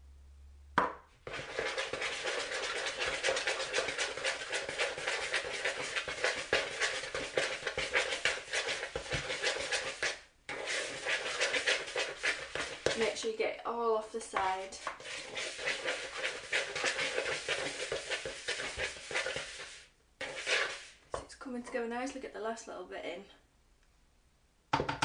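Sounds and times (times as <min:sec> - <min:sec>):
knife scraping dough in plastic bowl: 0:01.2 - 0:13.4, 0:14.2 - 0:21.8.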